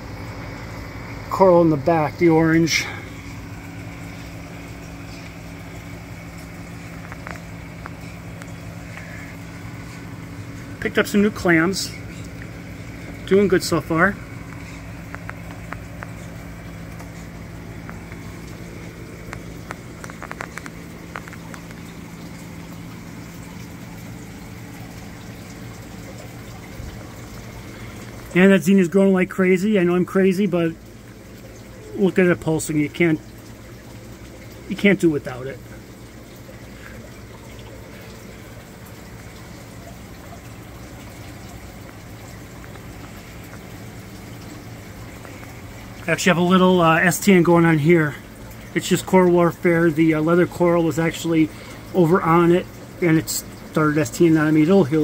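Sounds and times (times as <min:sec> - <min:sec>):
pumps humming: 0:00.0 - 0:55.0
water trickling and bubbling: 0:00.0 - 0:55.0
small clicks and pops: 0:07.0 - 0:09.1, 0:14.5 - 0:16.2, 0:19.2 - 0:22.4.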